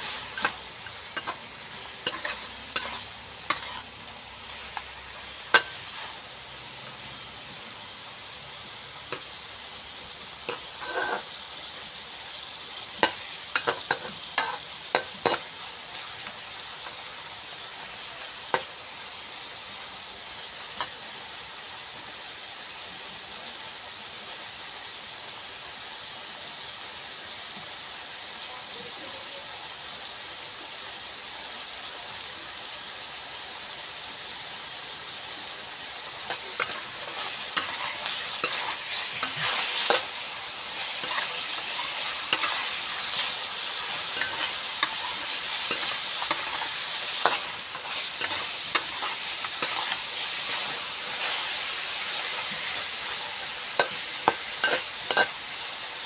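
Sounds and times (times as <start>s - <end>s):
metal spatula scraping a wok: 0.0s - 6.3s, 9.0s - 11.8s, 12.5s - 19.0s, 35.6s - 55.9s
chicken sizzling in a wok: 0.0s - 56.0s.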